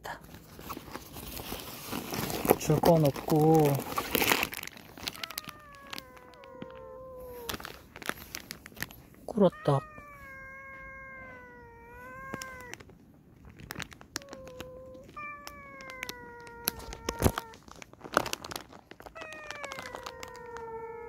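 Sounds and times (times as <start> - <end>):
plastic wrapper tearing: 0.4 - 9.4, 11.9 - 21.0
cat meowing: 5.1 - 7.7, 9.3 - 12.9, 14.2 - 17.7, 19.0 - 21.0.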